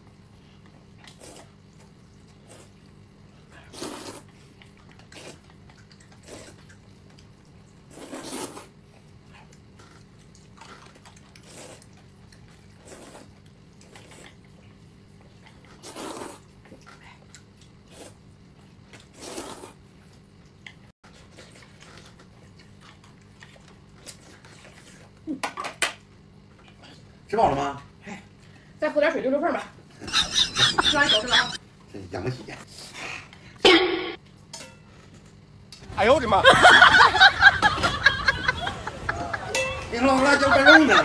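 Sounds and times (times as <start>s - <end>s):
person eating: 3.6s - 6.8s
low steady hum: 33.2s - 41.0s.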